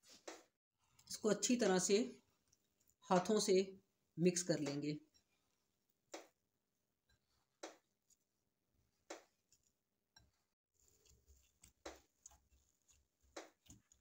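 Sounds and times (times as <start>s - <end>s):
hands kneading a crumbly mixture: 10.8s - 14.0s.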